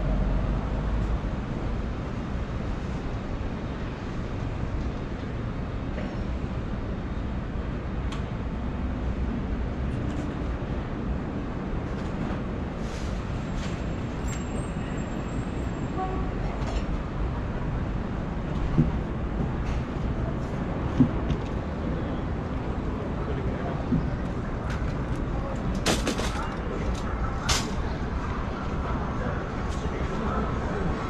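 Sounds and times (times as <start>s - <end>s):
distant traffic rumble: 15.6s - 31.0s.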